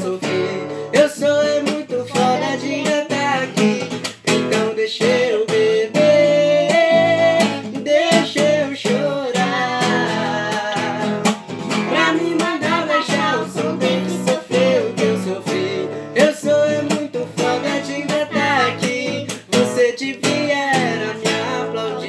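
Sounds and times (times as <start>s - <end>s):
acoustic guitar strumming: 0.0s - 22.0s
teenager and boy singing: 0.0s - 22.0s.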